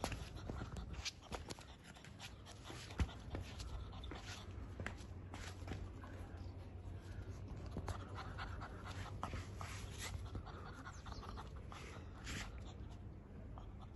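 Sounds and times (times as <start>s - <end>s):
puppy panting: 0.0s - 5.2s, 7.1s - 13.9s
soft scuffing: 0.0s - 6.2s.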